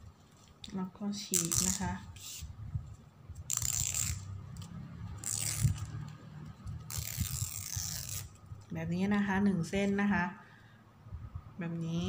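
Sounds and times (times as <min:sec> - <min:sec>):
ribbon ripping: 0:01.3 - 0:02.5, 0:03.4 - 0:08.5.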